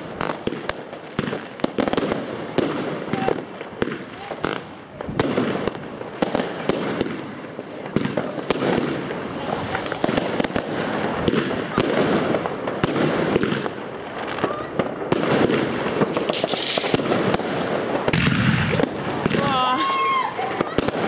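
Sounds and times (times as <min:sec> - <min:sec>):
crackle of bursting stars: 0:06.0 - 0:21.0
firework shells banging: 0:14.8 - 0:21.0.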